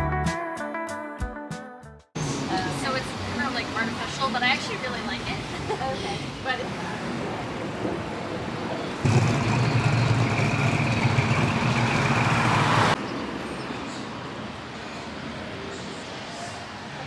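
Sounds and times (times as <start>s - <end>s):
street traffic: 2.2s - 17.0s
vehicle engine running loud: 9.0s - 13.0s.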